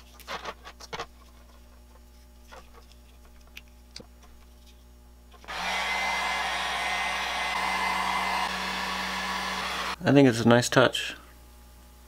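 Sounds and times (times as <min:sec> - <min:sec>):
heat gun blowing and humming: 0:05.4 - 0:10.0.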